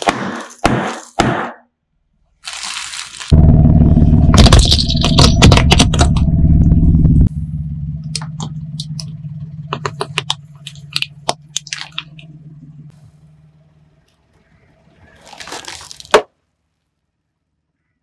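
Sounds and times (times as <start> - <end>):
car engine hum: 3.3 - 15.1
plastic cracking under car tyre: 4.3 - 6.3.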